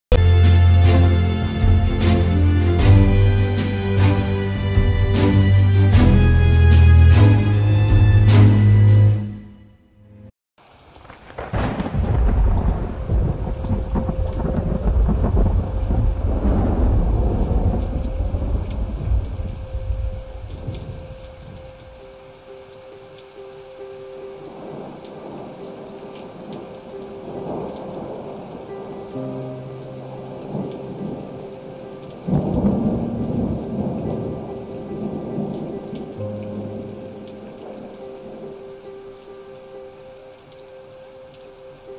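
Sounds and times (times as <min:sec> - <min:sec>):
steady rain: 0:00.1 - 0:09.2, 0:10.6 - 0:41.9
held musical tones: 0:00.1 - 0:09.7
low thunder rumble: 0:11.0 - 0:21.7, 0:32.2 - 0:38.5.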